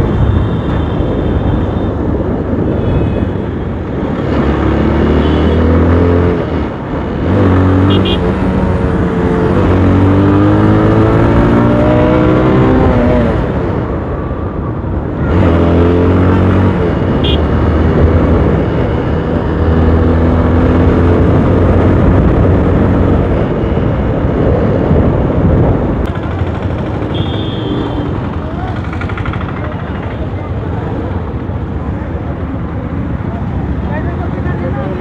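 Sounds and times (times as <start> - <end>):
motorcycle engine accelerating: 7.2 - 13.8, 15.2 - 23.4
constant rushing noise: 21.2 - 35.0.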